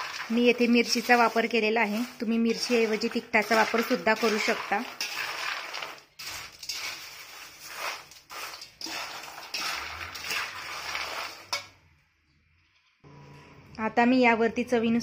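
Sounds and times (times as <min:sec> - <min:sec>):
crisp snacks rustling: 0:00.0 - 0:11.5.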